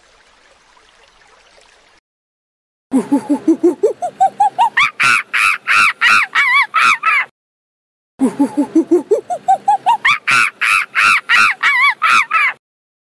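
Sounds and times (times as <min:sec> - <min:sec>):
chimpanzee hooting and screaming: 0:03.3 - 0:07.3, 0:08.6 - 0:12.6.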